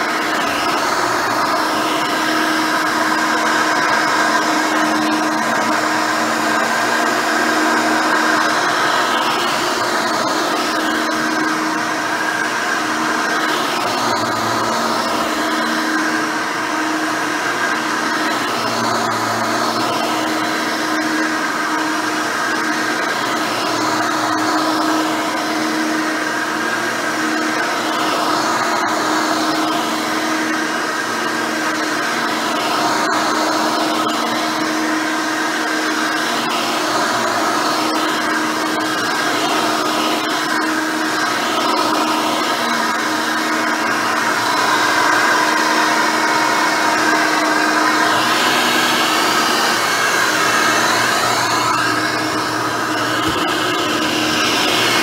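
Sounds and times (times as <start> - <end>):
upright vacuum motor hum and whine: 0.0 - 55.0.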